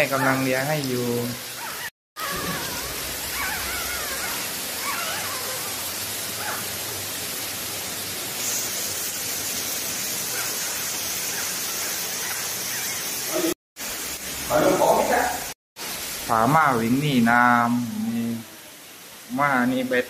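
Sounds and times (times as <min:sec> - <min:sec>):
puppies squeaking: 0:01.5 - 0:06.6, 0:10.4 - 0:13.2
heavy rain hissing: 0:02.2 - 0:20.0.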